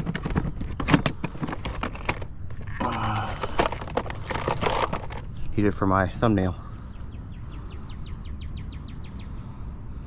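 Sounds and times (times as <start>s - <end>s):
case lid opening: 0.0s - 5.3s.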